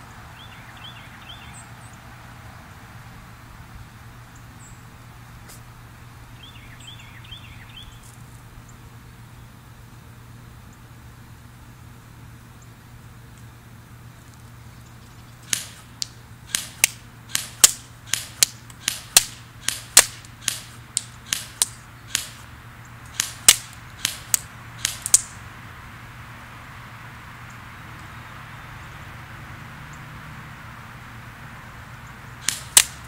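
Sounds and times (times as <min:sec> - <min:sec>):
airsoft gun sharp cracks: 0:15.4 - 0:22.5, 0:23.1 - 0:25.4, 0:32.4 - 0:33.0
pellets hitting paper target: 0:15.5 - 0:22.5, 0:23.1 - 0:25.3.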